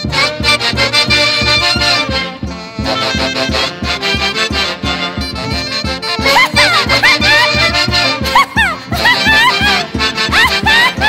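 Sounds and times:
saxophones and brass melody: 0.0 - 11.0
quick drum beat: 2.8 - 11.0.

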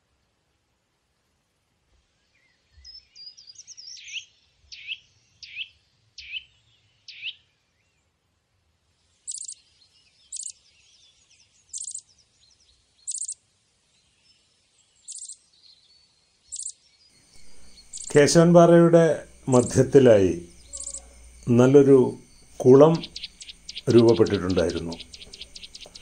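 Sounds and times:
birds twittering: 2.2 - 8.1, 9.0 - 26.0
short high noisy bird notes: 16.6 - 26.0.

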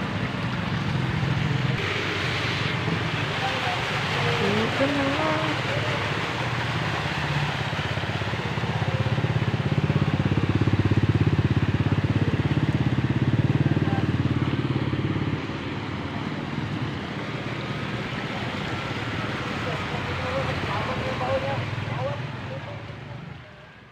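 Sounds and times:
motorcycle engine running: 0.0 - 23.2
motorcycle riding through water: 0.0 - 23.9.

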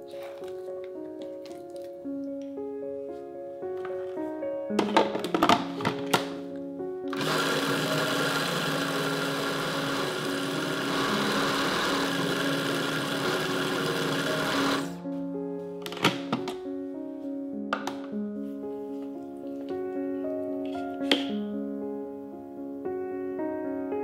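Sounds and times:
food processor running: 7.1 - 14.9.

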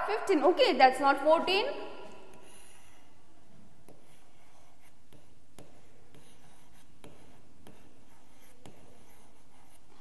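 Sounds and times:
stylus tapping and scratching: 3.8 - 10.0.

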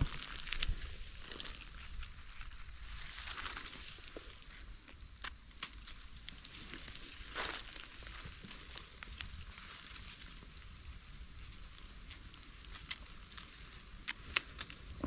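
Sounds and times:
dry leaves rustling: 0.0 - 4.8, 5.4 - 14.9.

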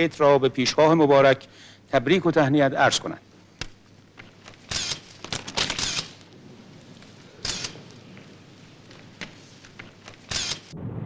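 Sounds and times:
camera shutters clicking: 3.6 - 6.3, 7.4 - 8.0, 8.9 - 10.7
film winding: 3.6 - 6.4, 7.0 - 8.0, 8.8 - 10.7.

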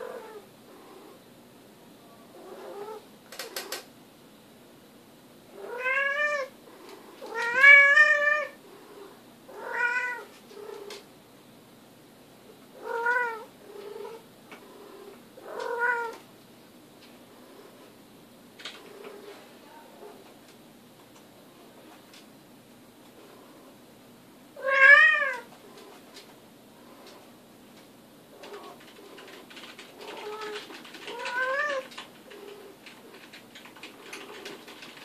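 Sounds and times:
sharp clicks: 3.3 - 3.9
cat yowling: 5.6 - 6.5, 7.3 - 8.6, 9.5 - 10.3, 12.8 - 13.5, 15.5 - 16.2, 24.6 - 25.4, 30.0 - 31.9.

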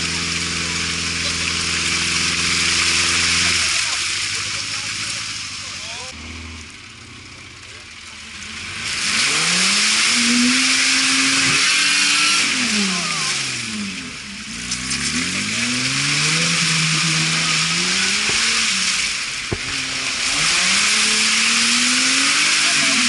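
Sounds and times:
off-road engine revving: 0.0 - 23.0
second engine: 0.0 - 23.0
sharp knock: 19.5 - 19.9.

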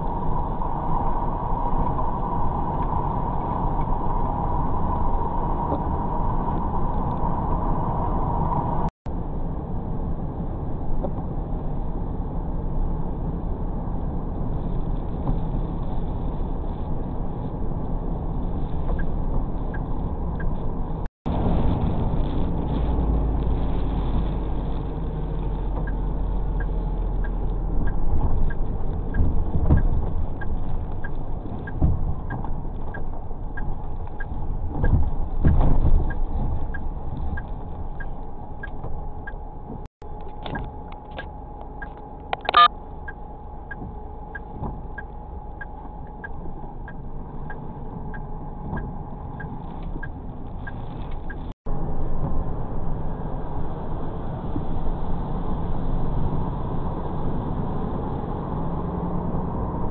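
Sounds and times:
truck engine and road rumble: 0.0 - 59.9
light regular ticking: 25.8 - 35.4
short high beep: 42.4 - 42.7.

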